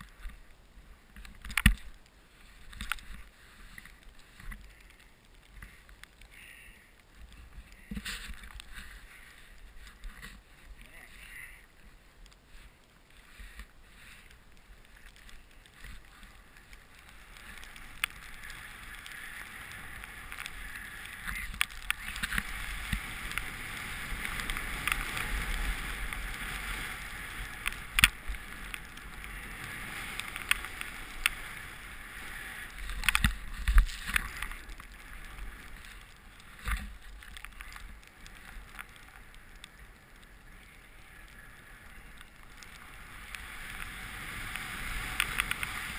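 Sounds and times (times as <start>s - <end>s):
snowboard hissing through snow: 29.3s - 33.0s, 42.9s - 45.9s.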